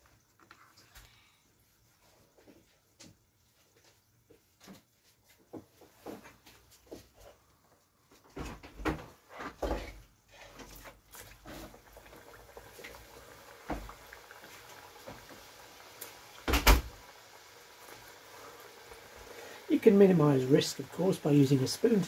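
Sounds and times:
oil sizzling: 0:10.6 - 0:22.0.

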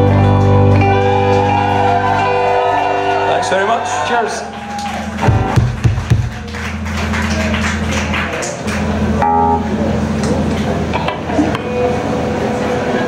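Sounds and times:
electric guitar chord: 0:00.0 - 0:03.3, 0:07.0 - 0:13.0
amplifier hum: 0:08.8 - 0:13.0.

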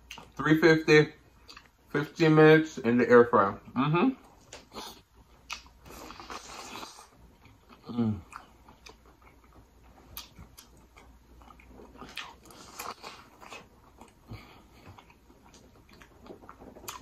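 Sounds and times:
chewing corn on the cob: 0:04.5 - 0:17.0.

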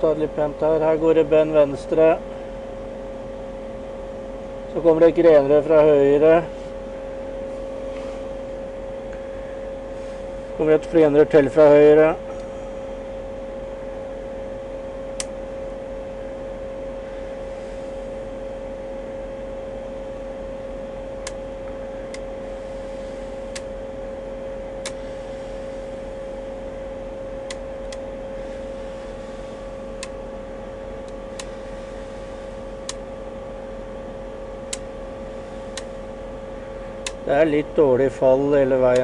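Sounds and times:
electrical whine: 0:00.0 - 0:39.0.

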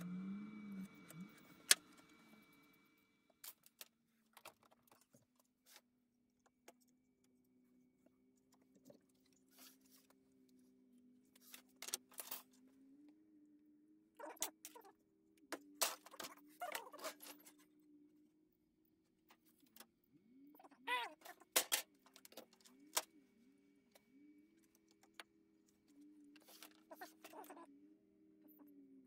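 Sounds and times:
faint steady hum: 0:00.0 - 0:05.6.

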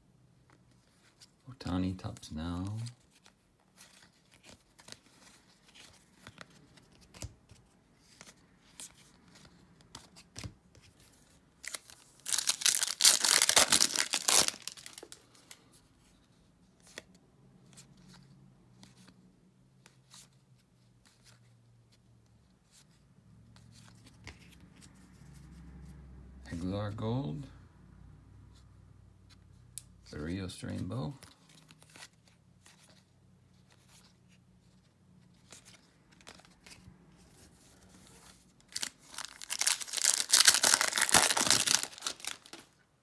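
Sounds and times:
cards clicking and shuffling: 0:01.9 - 0:19.2, 0:30.7 - 0:42.8
foil wrapper tearing and crinkling: 0:11.6 - 0:15.2, 0:38.7 - 0:42.7.

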